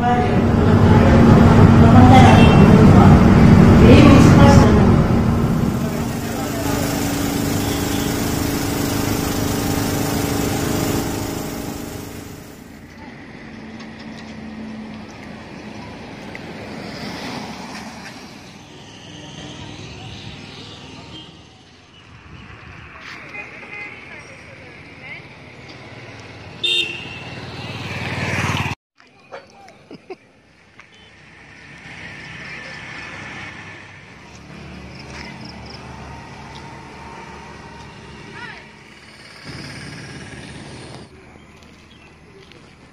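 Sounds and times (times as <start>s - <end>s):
road traffic rumble: 0.0s - 28.8s, 30.2s - 42.9s
water pump engine running: 0.3s - 12.8s.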